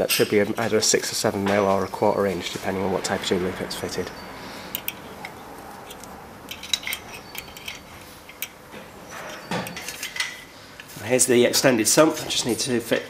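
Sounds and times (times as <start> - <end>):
faint ringing notes: 1.6 - 10.7
metallic clinks and ticks: 4.7 - 8.6.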